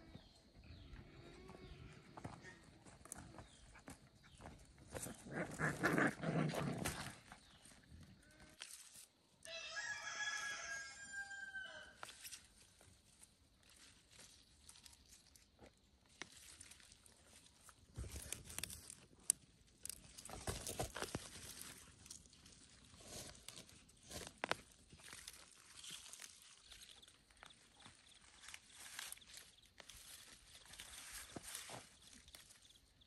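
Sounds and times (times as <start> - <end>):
footsteps on dry soil and leaves: 0.2 - 33.0
radishes pulled from dry earth: 6.8 - 33.0
rooster crowing: 9.4 - 12.0.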